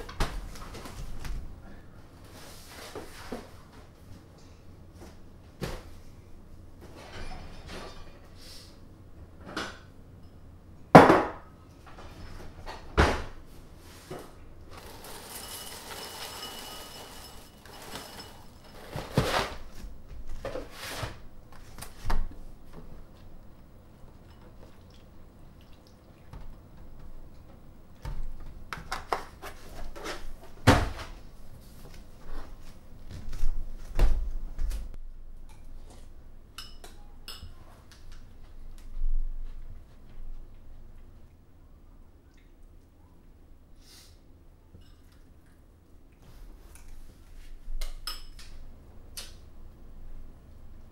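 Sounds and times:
dishes clinking and knocking: 6.9s - 8.3s, 14.8s - 19.4s.

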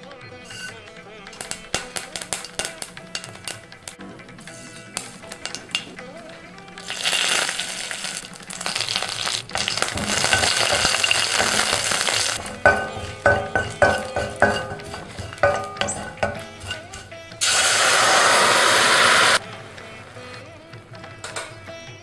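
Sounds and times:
wooden spatula scraping steel pan: 0.4s - 0.8s, 6.8s - 19.4s
spices sizzling in hot oil: 0.4s - 4.0s, 5.0s - 20.4s.

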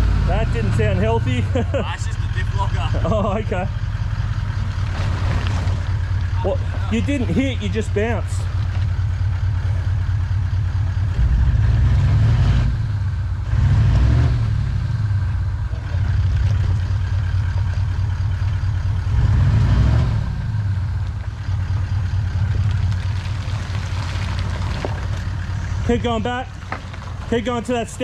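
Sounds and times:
truck engine labouring uphill: 0.0s - 28.0s.

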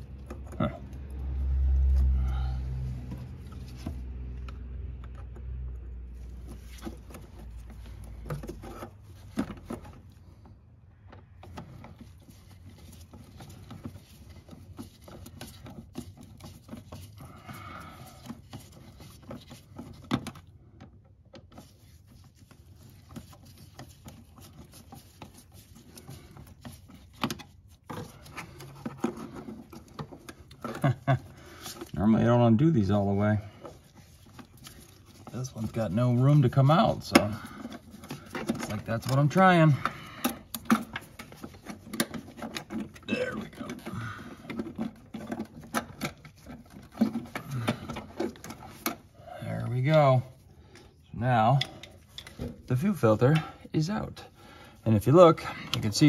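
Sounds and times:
screwdriver scraping and clicking: 33.6s - 49.1s.

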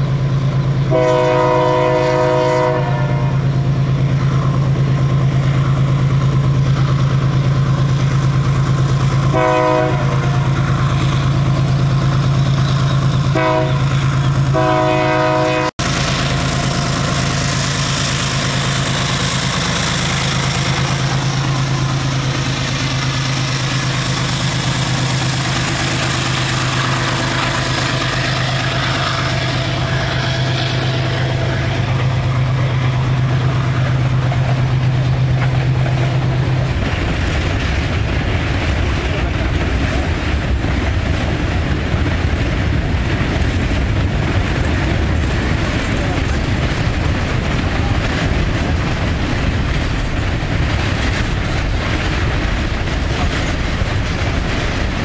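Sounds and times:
diesel locomotive drone: 0.0s - 55.0s
freight cars rumbling on rails: 0.0s - 55.0s
train horn: 0.9s - 3.5s, 9.3s - 10.6s, 13.3s - 15.9s, 26.5s - 32.0s.

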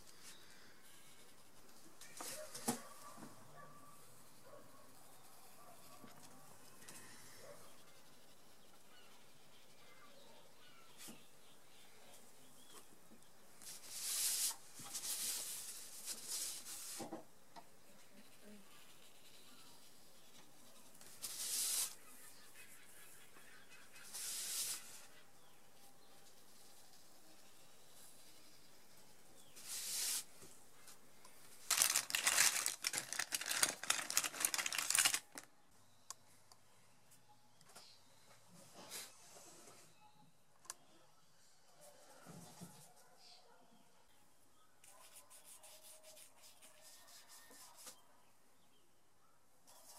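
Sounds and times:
paper rustling and scraping on table: 31.7s - 35.4s
pens and pencils rattling in a case: 31.7s - 35.5s.

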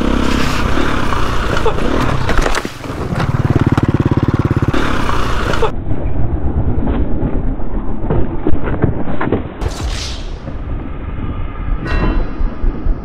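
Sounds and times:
dirt bike engine revving: 0.0s - 5.7s.

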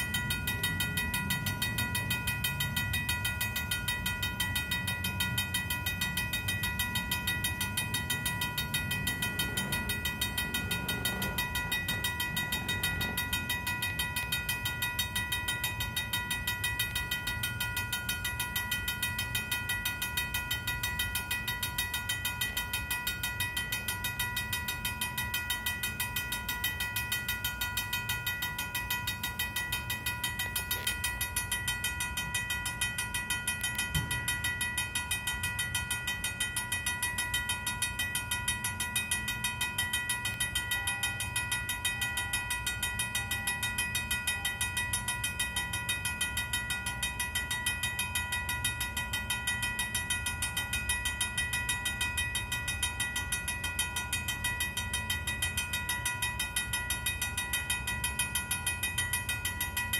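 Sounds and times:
railroad crossing bell ringing: 0.0s - 59.9s.

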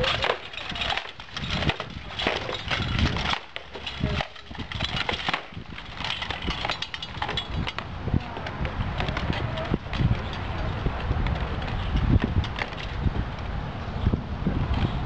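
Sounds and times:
practice swords clashing: 0.0s - 7.8s.

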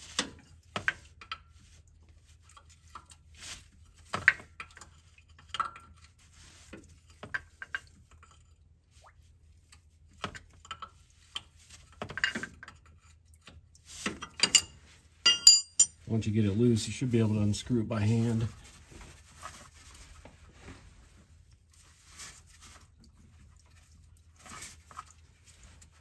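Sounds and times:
wrench clinking on metal: 14.4s - 16.0s.

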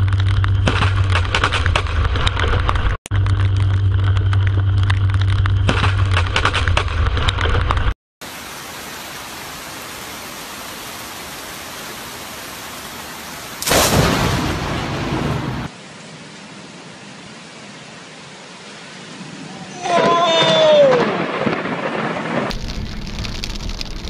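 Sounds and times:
low hum: 0.0s - 7.9s
raindrops tapping close by: 2.3s - 14.6s, 22.5s - 24.0s
heavy rain: 7.7s - 24.0s
lightning strike crack: 13.6s - 15.8s, 19.9s - 24.0s.

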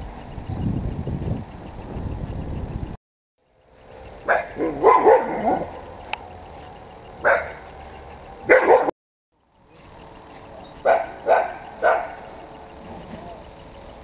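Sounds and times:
dog barking: 4.3s - 5.7s, 7.2s - 7.6s, 8.5s - 8.9s, 10.8s - 12.3s.

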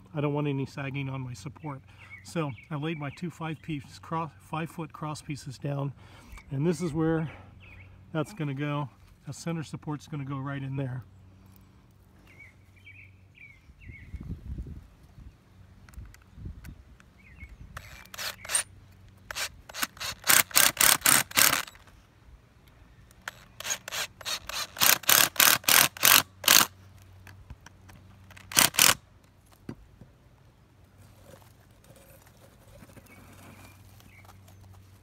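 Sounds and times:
cordless drill driving screws into wood: 17.7s - 22.0s, 23.1s - 26.7s, 28.2s - 29.0s.

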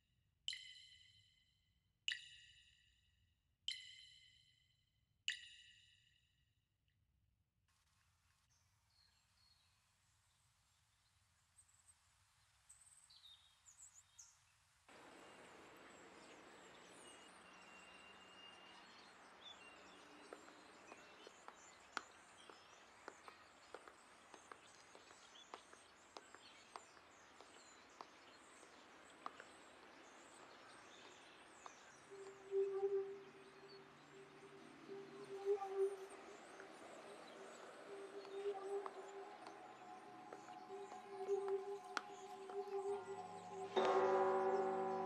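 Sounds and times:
steady street hiss: 14.9s - 17.8s
faint bird chirps: 15.1s - 45.0s.

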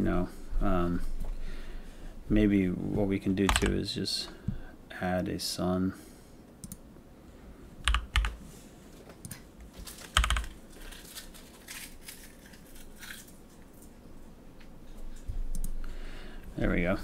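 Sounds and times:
computer keyboard keystrokes: 3.5s - 3.8s, 7.8s - 8.4s, 10.0s - 10.6s.

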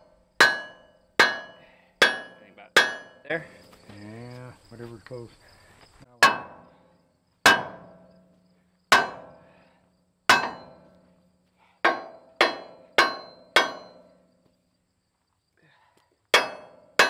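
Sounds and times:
sledgehammer striking steel: 0.0s - 3.3s, 6.2s - 6.8s, 7.4s - 8.3s, 8.9s - 9.5s, 10.3s - 11.0s, 11.8s - 14.3s, 16.3s - 17.0s.

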